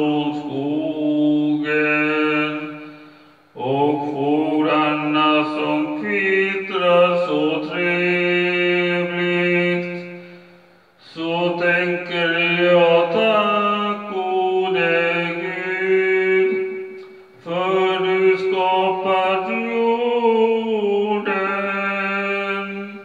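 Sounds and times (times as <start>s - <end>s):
man singing slowly: 0.0s - 23.0s.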